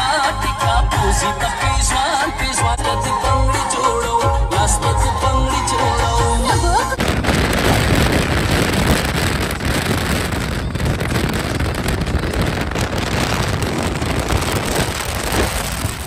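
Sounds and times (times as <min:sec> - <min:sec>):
wind buffeting microphone: 0:06.9 - 0:16.0.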